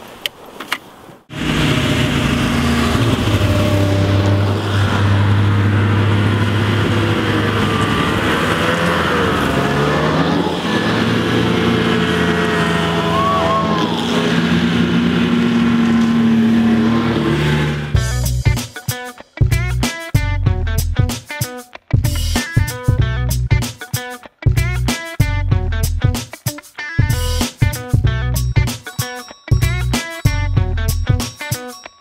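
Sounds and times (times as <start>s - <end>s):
snowmobile engines: 1.3s - 18.2s.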